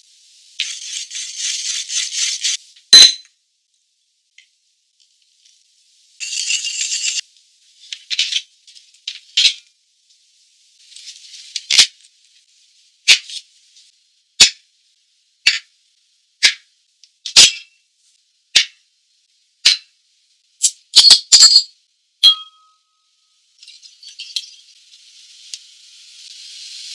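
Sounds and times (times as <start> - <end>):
steam hiss: 0.0 - 2.8, 24.6 - 26.9.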